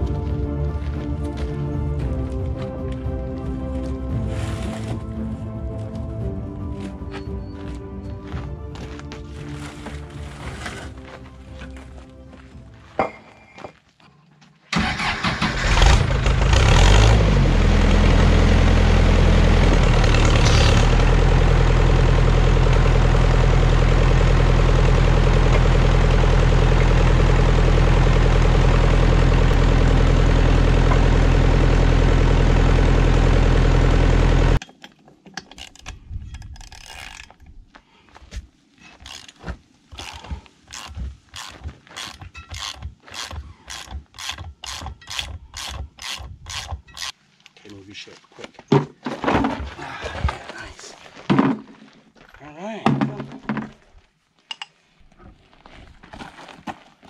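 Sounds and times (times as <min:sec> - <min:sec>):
vehicle engine starting and idling: 0:14.7 - 0:34.6
sharp mechanical clicks: 0:40.0 - 0:47.2.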